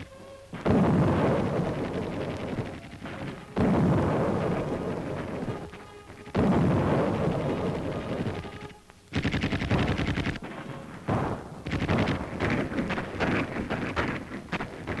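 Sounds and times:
machine-gun fire: 0.5 - 15.0
artillery boom: 0.6 - 8.6.

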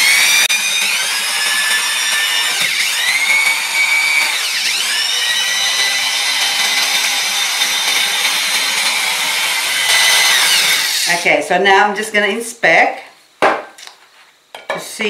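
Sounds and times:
drill bit grinding ceramic: 0.0 - 11.2
power drill whining: 0.0 - 11.2.

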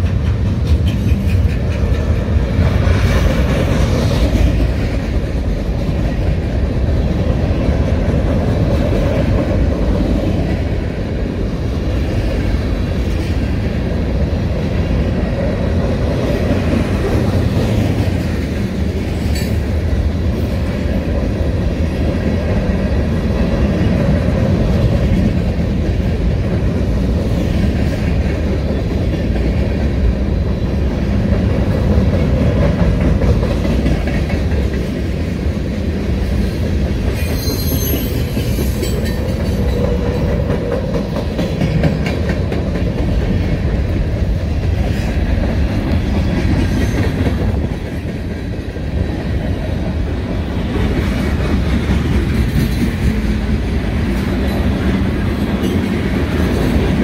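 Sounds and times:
clickety-clack over rail joints: 0.0 - 57.0
freight train wheels rumbling on rail: 0.0 - 57.0
high-pitched wheel squeal: 37.3 - 38.3.

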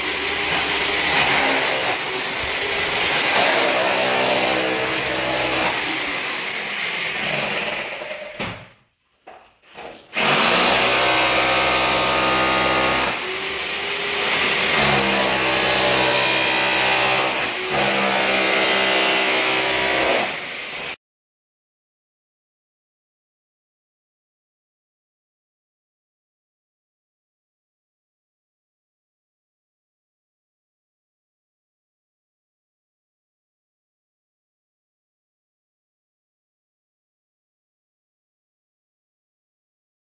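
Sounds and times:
electric power tool running: 0.0 - 8.4, 10.2 - 21.0.

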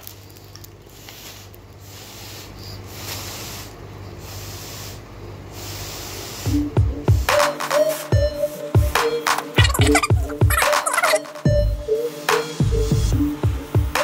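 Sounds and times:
foil rustling: 0.0 - 1.9
breath blowing through straw: 0.9 - 6.7.

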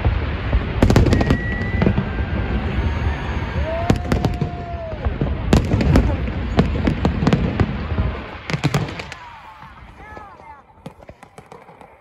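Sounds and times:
fireworks booming and cracking: 0.0 - 12.0
steady whistle-like tone: 0.9 - 3.7.

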